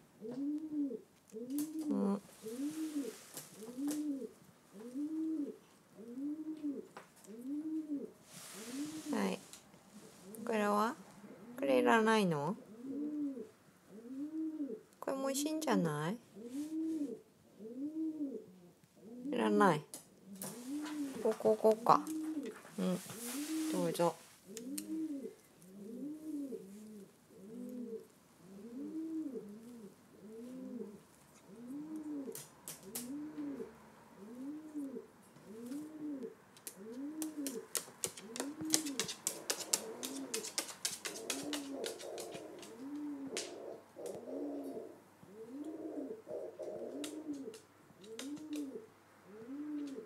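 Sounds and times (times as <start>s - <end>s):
pigeon cooing: 0.2s - 10.6s, 12.5s - 14.9s, 16.4s - 19.6s, 20.2s - 50.0s
sharp clicking taps: 36.6s - 44.2s.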